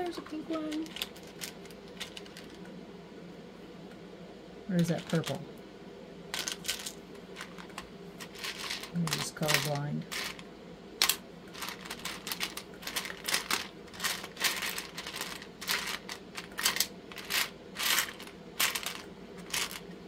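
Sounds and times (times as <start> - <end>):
resin charms clicking and rattling: 0.6 - 2.6, 6.4 - 19.8.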